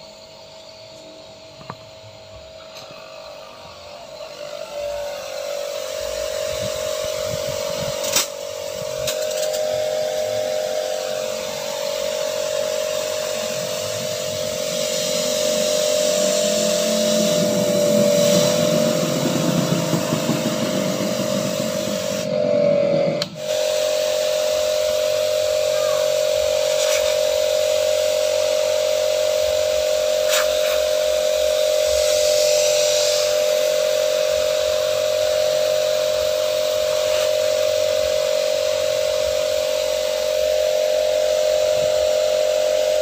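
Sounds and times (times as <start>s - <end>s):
electric pressure washer whine: 0.0s - 43.0s
water spraying from nozzle: 5.5s - 22.3s, 23.4s - 43.0s
sharp click: 8.0s - 8.4s.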